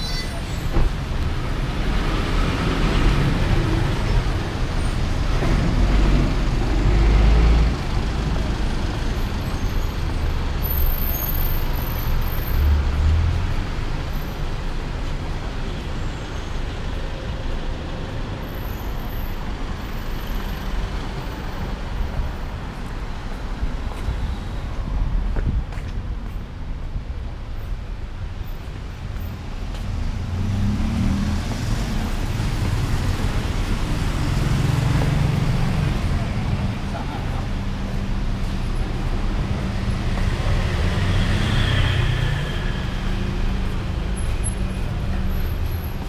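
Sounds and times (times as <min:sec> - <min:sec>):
traffic rumbling past: 0:27.8 - 0:46.0.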